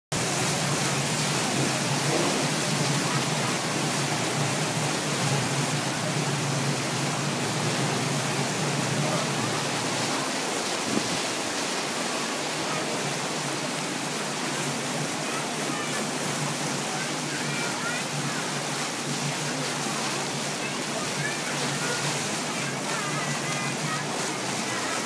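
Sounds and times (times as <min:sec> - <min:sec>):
water rushing in a boat wake: 0:00.1 - 0:25.0.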